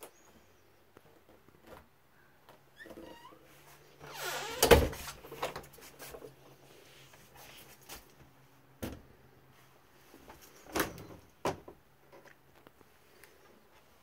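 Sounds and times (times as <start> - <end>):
wooden door shutting: 4.1 - 5.1.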